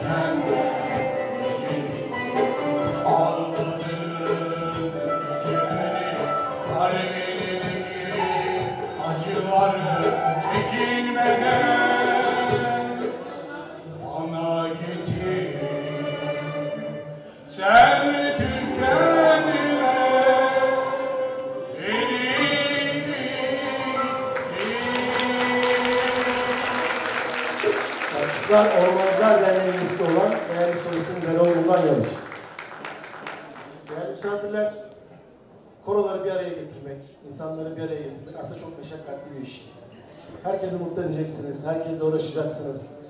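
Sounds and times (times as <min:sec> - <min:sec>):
choir singing: 0:00.0 - 0:29.3
instrumental accompaniment: 0:00.0 - 0:33.9
applause: 0:24.3 - 0:34.2.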